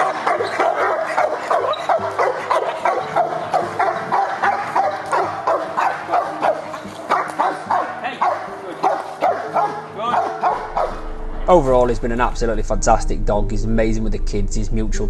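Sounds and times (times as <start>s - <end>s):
dog barking rapidly: 0.0s - 11.0s.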